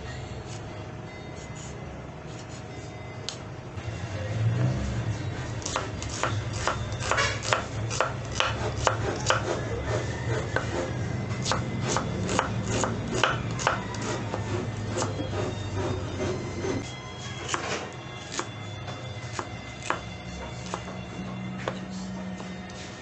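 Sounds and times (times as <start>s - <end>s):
knife chopping on wooden board: 5.6s - 16.8s, 17.4s - 18.5s, 19.2s - 21.0s.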